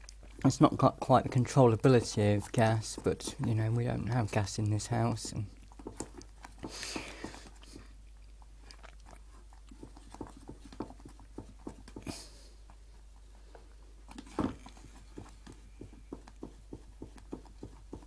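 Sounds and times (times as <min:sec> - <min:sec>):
thick soup boiling with wet plops: 0:00.0 - 0:18.0.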